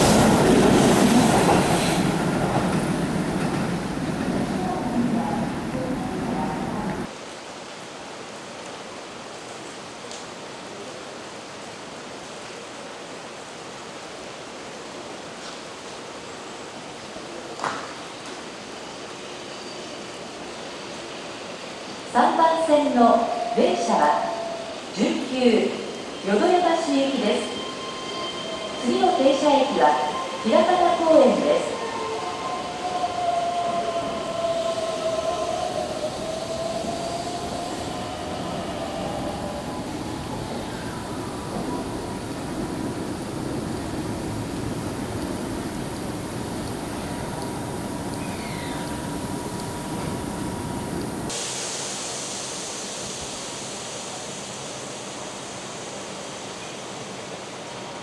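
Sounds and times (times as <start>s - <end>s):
steady train whine: 0.0s - 7.1s, 20.2s - 58.0s
heavy rain: 0.0s - 19.1s, 32.4s - 55.8s
electric train braking: 22.8s - 54.9s.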